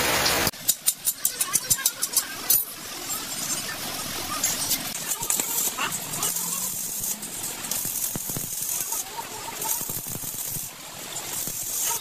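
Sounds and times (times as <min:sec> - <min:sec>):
metal parts clinking: 0:00.6 - 0:03.7, 0:04.4 - 0:12.0
short bursts of high hiss: 0:05.2 - 0:12.0.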